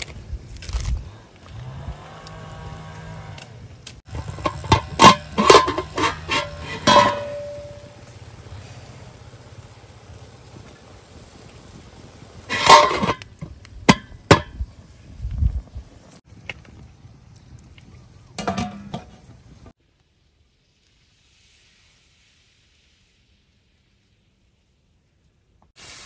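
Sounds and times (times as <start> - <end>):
spoon scraping metal pot: 4.1 - 7.8, 12.5 - 13.2
metal lid clattering onto pot: 4.2 - 7.9, 12.5 - 13.2, 18.4 - 19.1.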